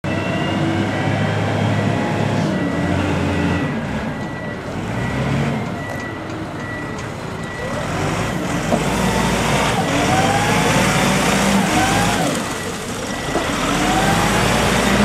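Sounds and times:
forklift diesel engine running: 0.1s - 15.0s.

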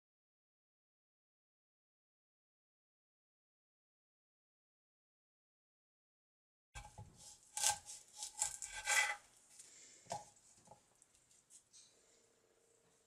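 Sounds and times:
knife slicing on cutting board: 6.8s - 9.2s.

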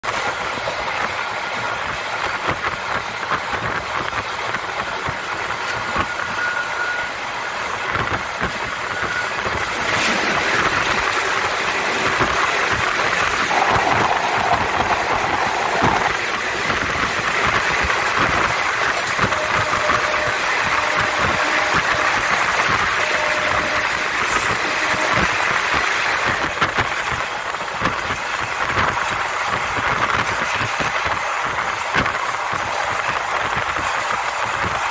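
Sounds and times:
passing freight train rush: 0.0s - 34.9s
held tone: 13.4s - 16.8s.

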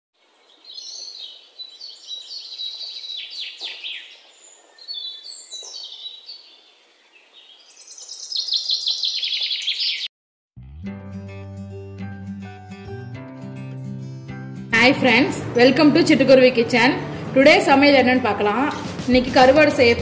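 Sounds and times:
songbird singing: 0.2s - 10.1s.

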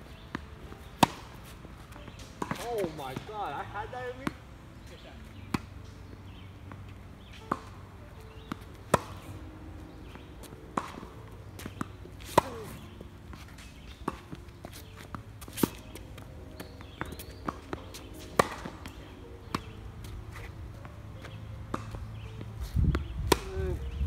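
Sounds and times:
tennis ball struck by rackets: 0.1s - 3.4s, 4.1s - 23.9s
tennis ball bouncing on court: 0.1s - 23.9s.

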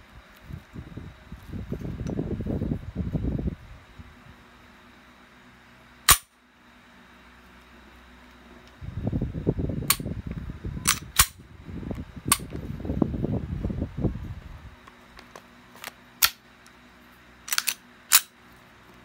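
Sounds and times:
low rumbling handling noise: 0.0s - 4.4s, 8.2s - 16.4s
sharp metallic pistol clicks: 6.1s - 6.3s, 10.8s - 11.4s, 16.2s - 16.4s, 17.5s - 18.3s.

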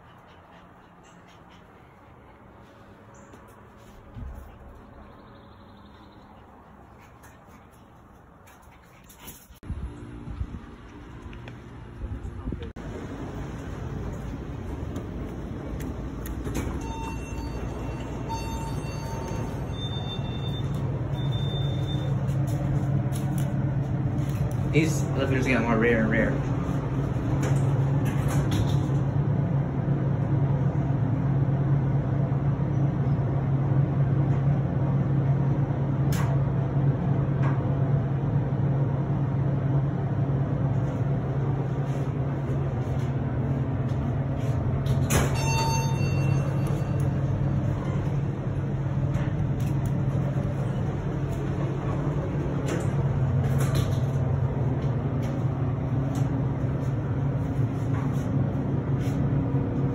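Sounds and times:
low machinery hum: 0.0s - 59.9s
elevator chime: 16.4s - 22.4s, 45.0s - 48.2s.

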